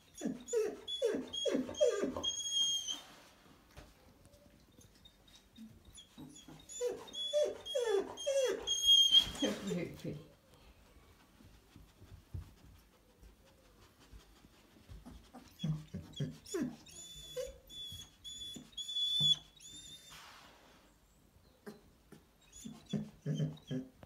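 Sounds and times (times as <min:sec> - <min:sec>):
dog squealing: 0:06.4 - 0:09.5.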